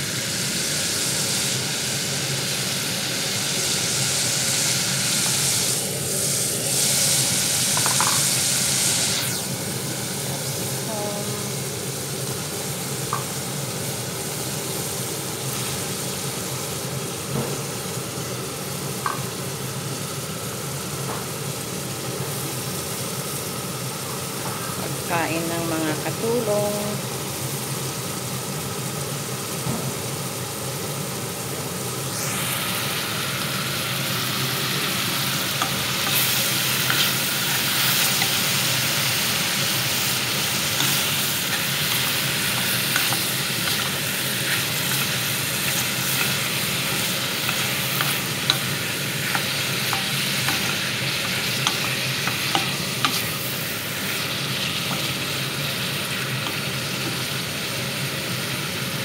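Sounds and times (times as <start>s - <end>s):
vegetables sizzling in a pot: 0.0s - 59.0s
wooden spatula scraping and tapping: 47.4s - 53.3s.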